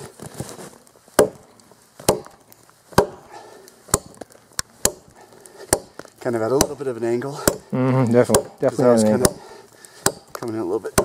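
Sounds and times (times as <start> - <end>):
tomahawk chopping into log: 1.2 - 1.4, 2.0 - 3.3, 3.9 - 4.2, 4.8 - 6.8, 7.4 - 7.7, 8.3 - 11.0.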